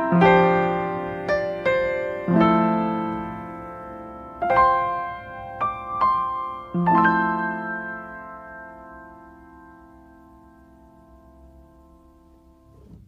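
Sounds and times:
piano music: 0:00.0 - 0:13.0.

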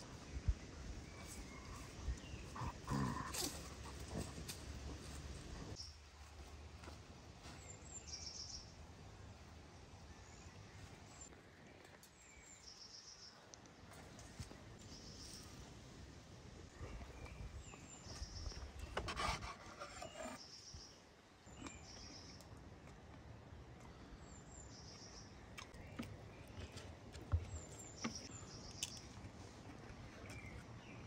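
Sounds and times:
songbird singing: 0:07.4 - 0:08.8, 0:16.7 - 0:22.5, 0:23.7 - 0:31.0
knife scraping on wooden board: 0:19.0 - 0:20.4.

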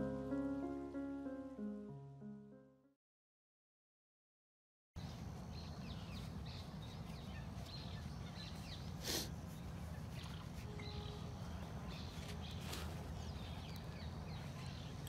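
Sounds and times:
bird chirps: 0:05.0 - 0:15.0.

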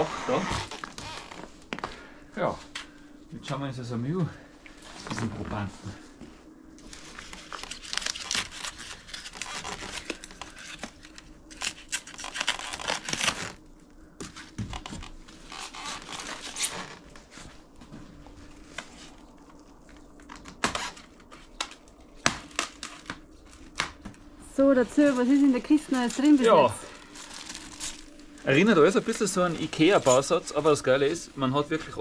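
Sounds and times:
packaging tearing and crinkling: 0:06.9 - 0:13.6, 0:14.4 - 0:17.1, 0:20.2 - 0:24.0, 0:26.0 - 0:30.4.

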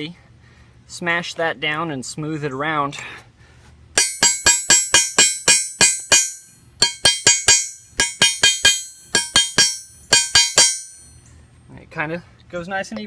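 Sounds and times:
hammer striking metal rivet setter: 0:04.0 - 0:11.3.

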